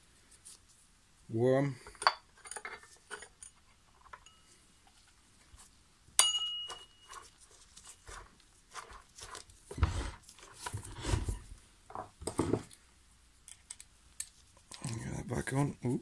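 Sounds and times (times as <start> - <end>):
metal clinks and scrapes: 1.8 - 4.6, 6.2 - 9.4
dull thuds and rubbing: 8.0 - 11.5.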